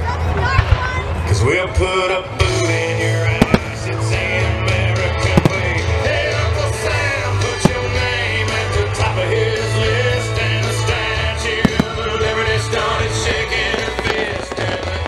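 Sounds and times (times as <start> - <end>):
music with singing: 1.3 - 15.0
fireworks bursting with sharp bangs: 3.0 - 9.2, 10.6 - 15.0.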